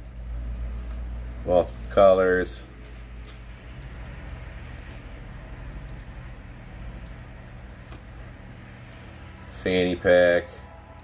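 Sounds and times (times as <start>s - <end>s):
computer mouse clicks: 0.0s - 1.0s, 3.2s - 5.0s, 5.8s - 6.2s, 7.0s - 9.2s
low electrical hum: 0.0s - 11.0s.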